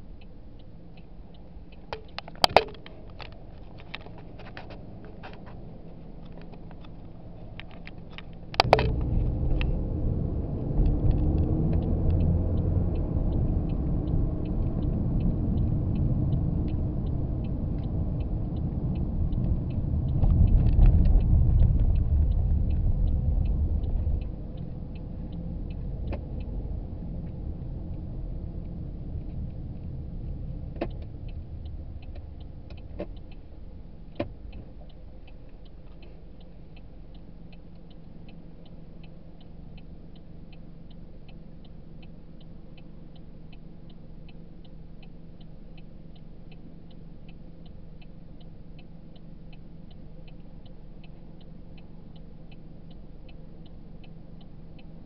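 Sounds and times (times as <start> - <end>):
road and engine rumble: 0.0 - 55.0
sharp clicks: 0.6 - 5.6, 6.2 - 9.8
faint even ticking: 4.9 - 55.0.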